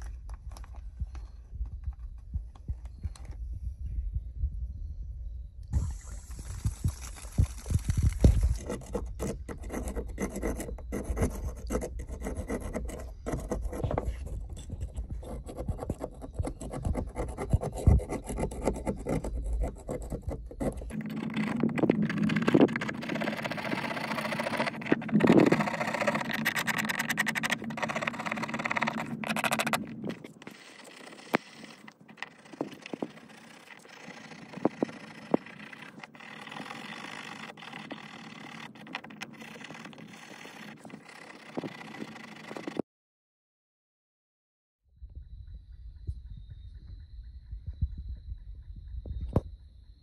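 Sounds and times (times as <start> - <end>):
stiff brush scrubbing key: 8.3 - 42.8.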